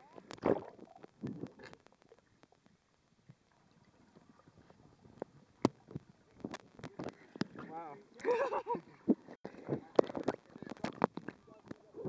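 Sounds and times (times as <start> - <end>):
faint underwater clicks: 0.0 - 12.0
dull underwater knocks and rumbles: 0.1 - 7.8, 9.1 - 11.8.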